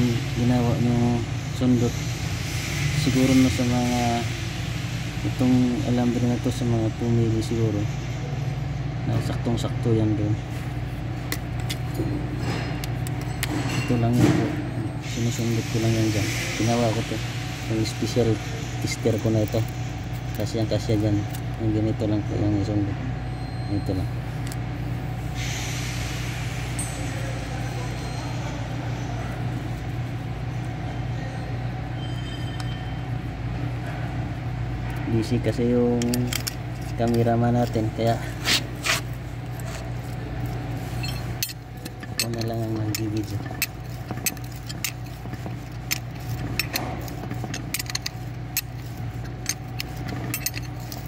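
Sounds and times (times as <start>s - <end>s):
machinery humming: 0.0s - 51.0s
metallic ring and click: 41.0s - 51.0s.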